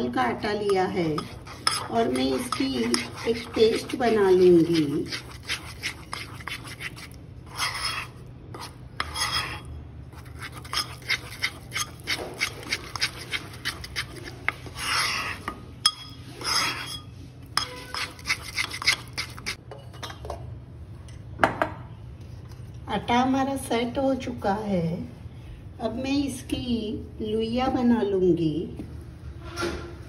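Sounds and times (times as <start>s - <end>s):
spoon scraping pan: 0.4s - 19.6s
spoon clinking against metal pan: 15.8s - 16.2s.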